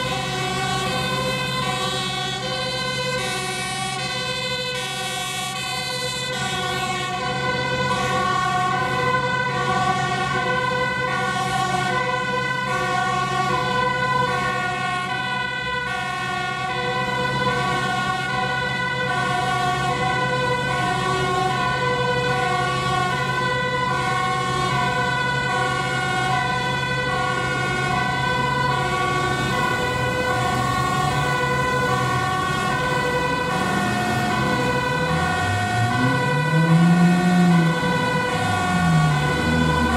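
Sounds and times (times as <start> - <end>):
fire engine two-tone siren: 0.0 - 39.9.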